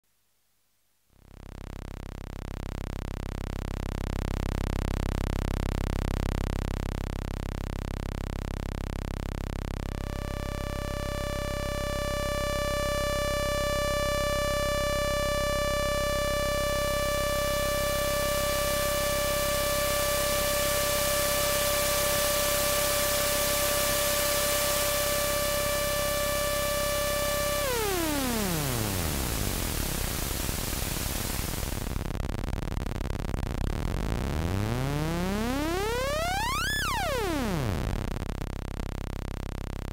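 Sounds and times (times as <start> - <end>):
synth oscillator steady tone: 10.0 - 31.9, 33.8 - 38.1
synth noise hiss: 17.9 - 32.1
low hum: 33.4 - 38.4.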